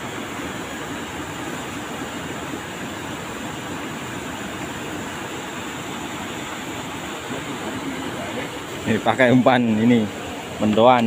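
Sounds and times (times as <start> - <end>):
river rapids rushing: 0.0 - 11.0.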